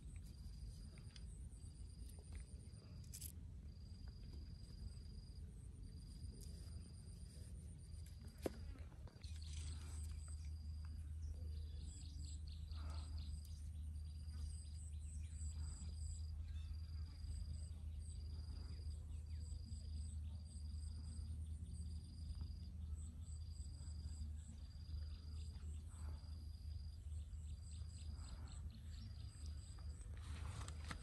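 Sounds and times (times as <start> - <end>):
higher insect chirps: 9.2 - 31.0.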